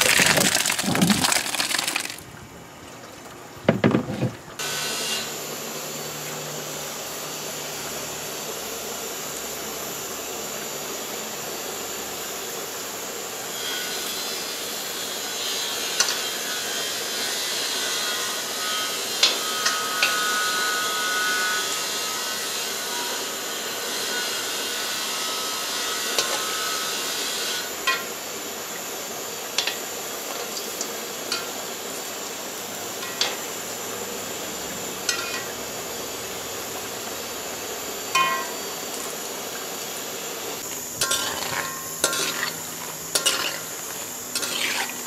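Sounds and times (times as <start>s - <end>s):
batter sizzling in hot oil: 0.0s - 2.2s, 7.0s - 45.0s
metal spoons clinking on pot: 33.0s - 33.4s, 35.1s - 35.6s, 38.2s - 38.6s, 41.0s - 43.8s, 44.4s - 44.9s.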